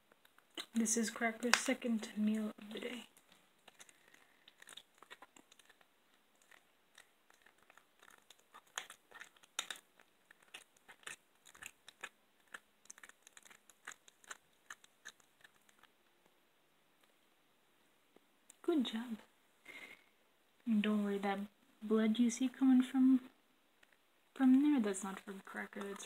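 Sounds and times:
cat crunching bone: 3.1s - 15.9s.

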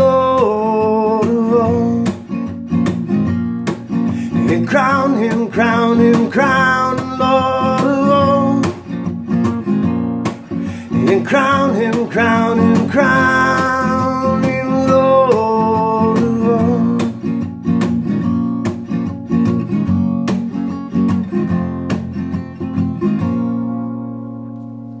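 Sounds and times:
person singing: 0.0s - 2.3s, 4.2s - 8.9s, 10.6s - 17.2s
acoustic guitar strumming: 0.0s - 25.0s.

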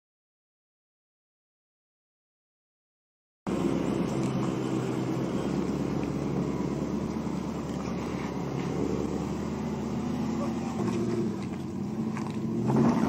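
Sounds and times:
engine running at low revs: 3.5s - 13.0s.

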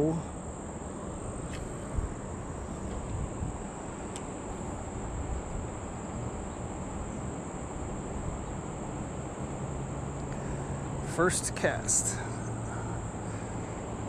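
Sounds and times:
insects chirring: 0.0s - 14.0s
low outdoor rumble: 0.0s - 14.0s.

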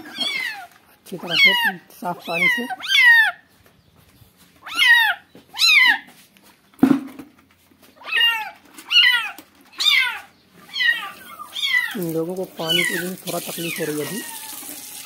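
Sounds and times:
kittens meowing in distress: 0.0s - 3.4s, 8.0s - 15.0s
sharp knock: 6.8s - 7.3s.

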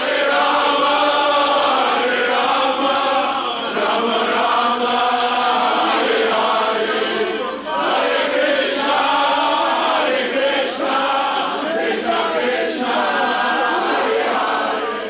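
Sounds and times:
crowd of men chanting: 0.0s - 15.0s.

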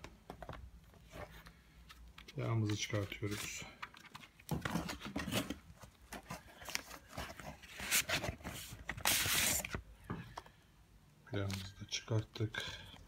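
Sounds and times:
paper and cardboard rustling: 0.3s - 9.8s.

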